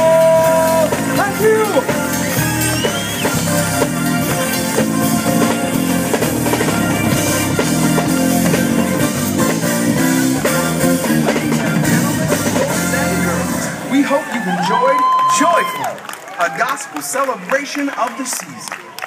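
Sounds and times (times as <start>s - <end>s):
low bass line: 0.0s - 14.0s
drum kit: 0.0s - 14.4s
electric guitar: 0.0s - 14.4s.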